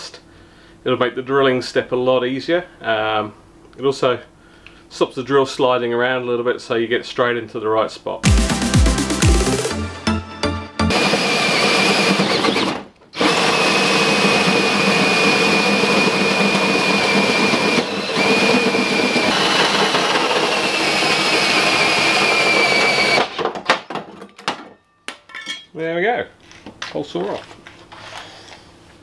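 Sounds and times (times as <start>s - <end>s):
drill with hole saw grinding metal: 10.9s - 23.4s.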